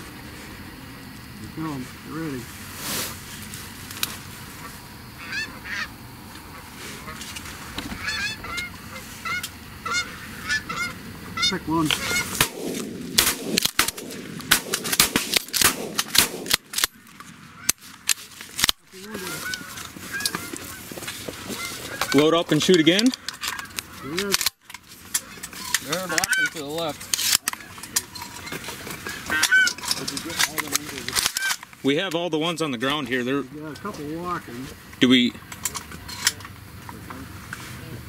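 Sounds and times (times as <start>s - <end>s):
geese honking: 4.5s - 12.5s, 18.9s - 24.3s, 25.2s - 26.8s, 27.6s - 29.9s
shotgun shots: 12.0s - 17.0s.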